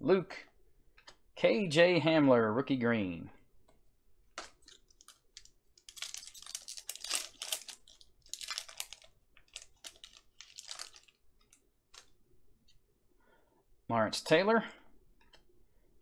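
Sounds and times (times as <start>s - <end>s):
foil pack tearing and crinkling: 4.7s - 11.2s.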